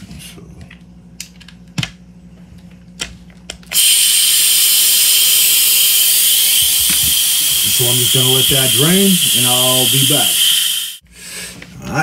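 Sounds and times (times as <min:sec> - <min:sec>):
high-pressure air hissing: 0:03.8 - 0:11.0.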